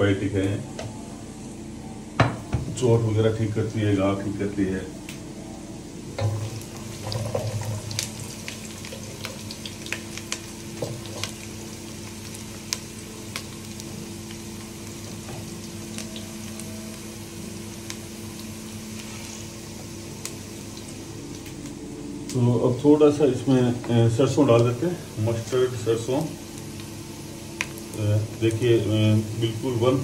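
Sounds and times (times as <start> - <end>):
food sizzling in oil: 6.1 - 21.6, 24.1 - 30.0.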